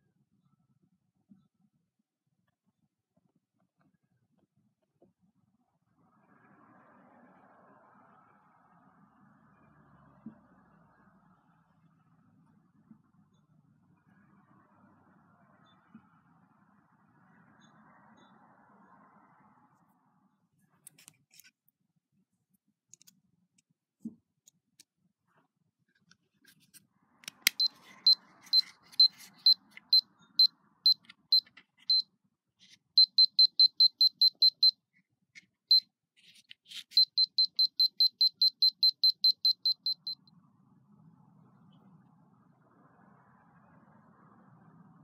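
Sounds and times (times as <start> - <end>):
voltage detector beeping: 27.4 - 32.0, 33.0 - 34.8, 36.9 - 40.2.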